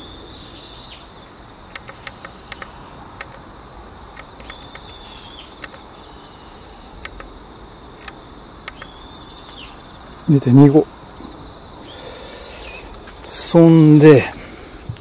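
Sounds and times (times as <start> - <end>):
small buttons clicking: 1.7 - 3.4, 5.6 - 5.8, 7.0 - 7.3, 8.0 - 9.0
high whistled call: 4.4 - 6.9, 8.7 - 9.8.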